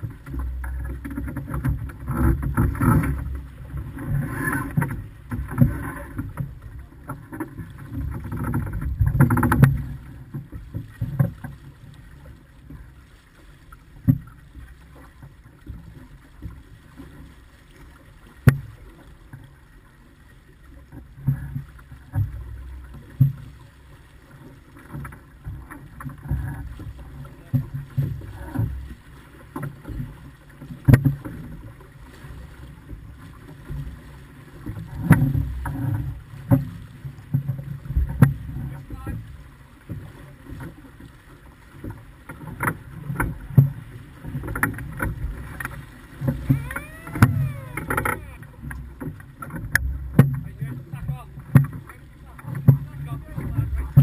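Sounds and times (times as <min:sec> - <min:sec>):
water rushing along a hull: 0:00.0 - 0:54.0.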